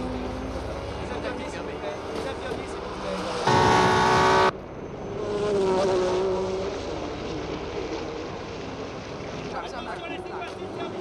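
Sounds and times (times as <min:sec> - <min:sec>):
racing car engine high revs: 0:03.0 - 0:04.5.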